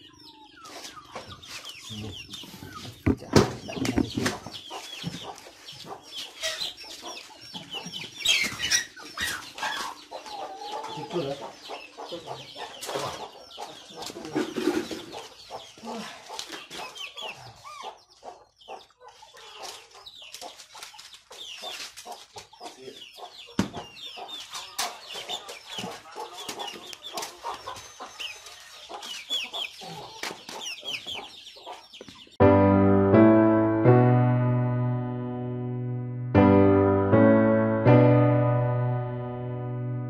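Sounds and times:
chickens clucking: 0.0 - 32.4
piano tune: 32.4 - 40.0.

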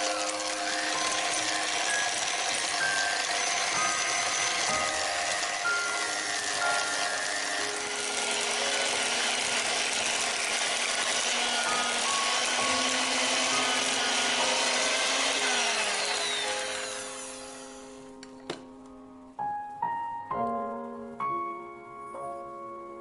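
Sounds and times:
electric hand mixer whirring: 0.0 - 18.4.

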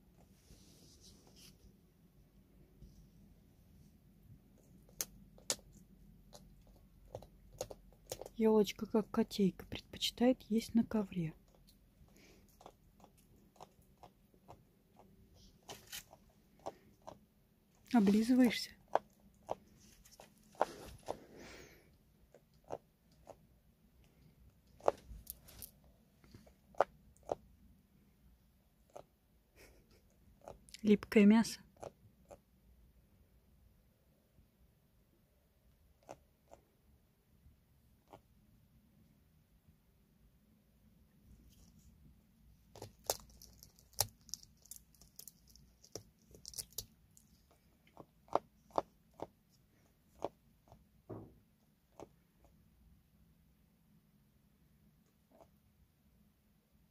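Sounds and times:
owl tearing and eating meat: 11.5 - 17.2, 42.6 - 50.9.

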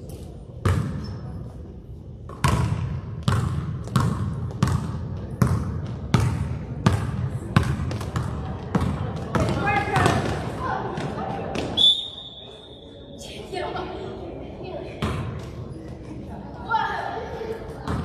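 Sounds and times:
basketball bouncing on gym floor: 0.6 - 1.1, 2.3 - 10.4.

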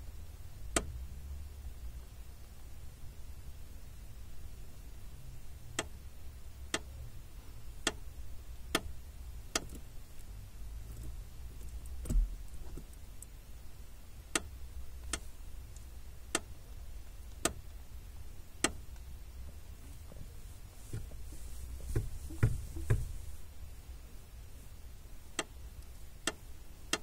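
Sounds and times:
dull knock: 21.8 - 23.2.

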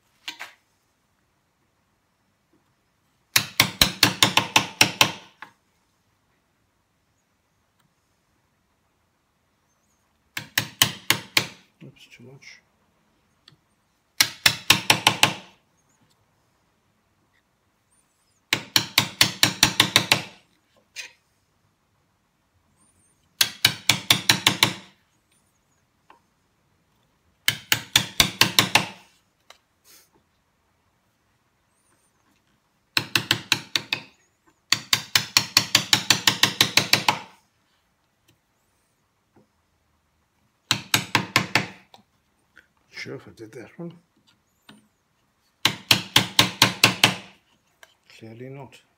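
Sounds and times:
hammer tapping a chisel into wood: 3.3 - 5.6, 10.3 - 11.7, 14.2 - 15.5, 18.5 - 20.4, 23.4 - 25.0, 27.4 - 29.0, 32.9 - 37.4, 40.7 - 42.0, 45.6 - 47.4.

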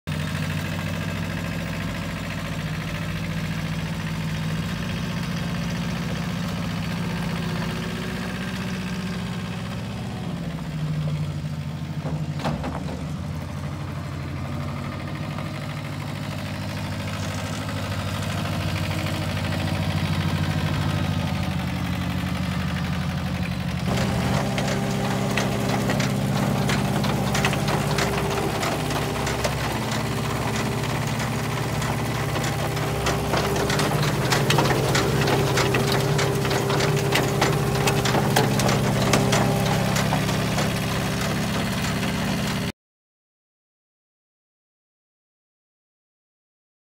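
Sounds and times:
truck humming on gravel: 0.1 - 42.7
rapid metallic clatter: 15.5 - 42.7.

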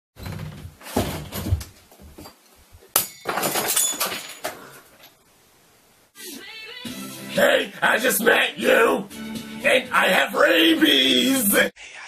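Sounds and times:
door flung open with thumps: 0.2 - 1.8
clattering with ringing tones: 2.2 - 5.2.

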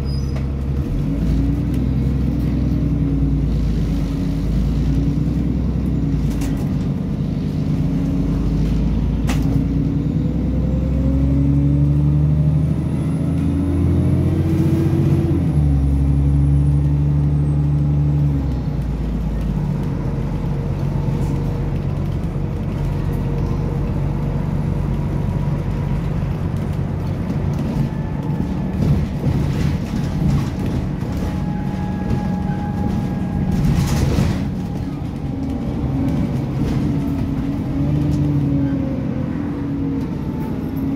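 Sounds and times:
bus diesel engine accelerating: 0.0 - 40.9
road and tyre rumble: 0.0 - 40.9
interior rattles and knocks: 27.0 - 37.7.

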